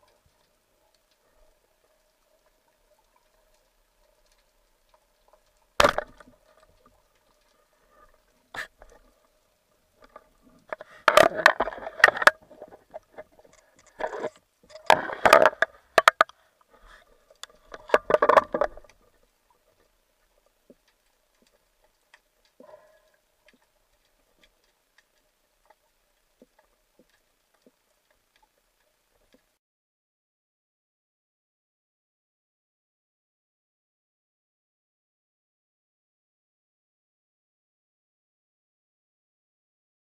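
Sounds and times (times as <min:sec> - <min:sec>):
faint ticks: 0:00.0 - 0:11.1, 0:12.0 - 0:29.6
underwater knocks and scraping: 0:00.1 - 0:29.6.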